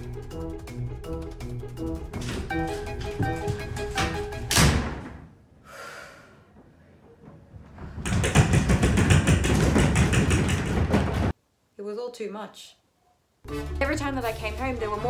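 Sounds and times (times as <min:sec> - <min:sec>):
glass door slamming: 0:04.5 - 0:05.3
hands banging on glass door: 0:08.0 - 0:11.3.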